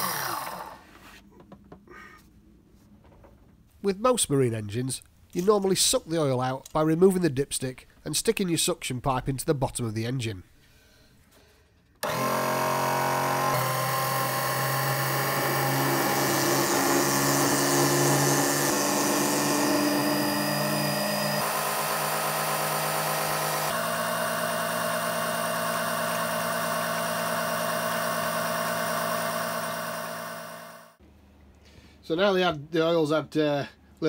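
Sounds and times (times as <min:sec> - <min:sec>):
electric pump whirring: 0:00.0 - 0:00.9, 0:12.0 - 0:31.0.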